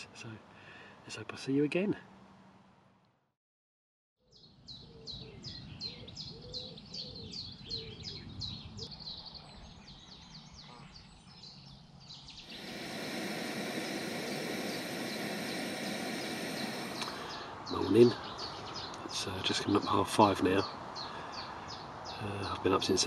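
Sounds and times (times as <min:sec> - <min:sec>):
steady outdoor hiss: 0:00.0 - 0:03.0, 0:04.4 - 0:23.0
softer lower bird calls: 0:04.2 - 0:19.2
faint bird chirps: 0:04.2 - 0:22.7.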